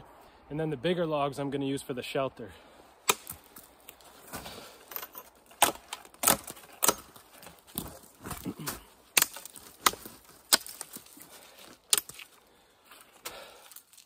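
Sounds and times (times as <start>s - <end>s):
knife chopping wood: 3.1s - 3.4s, 5.5s - 11.1s.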